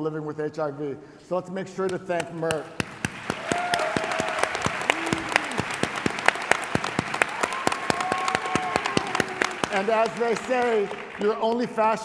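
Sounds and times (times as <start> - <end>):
audience applauding: 2.8 - 12.0
drawn-out cheers: 3.3 - 5.8, 7.2 - 9.8.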